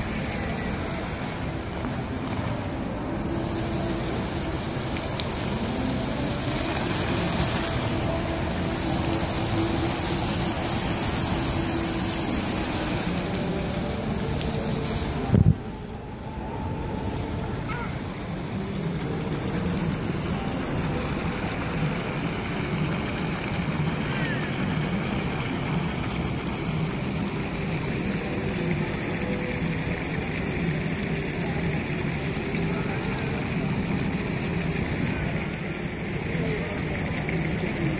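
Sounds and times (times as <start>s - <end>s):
low hum: 0.0s - 24.0s
fountain water splashing: 0.0s - 37.9s.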